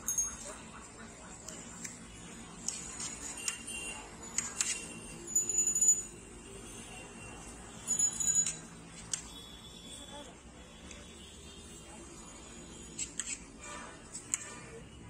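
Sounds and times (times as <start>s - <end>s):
high bell-like ringing: 0.0s - 0.6s, 4.9s - 7.0s, 7.7s - 8.7s
low street hum: 0.0s - 15.0s.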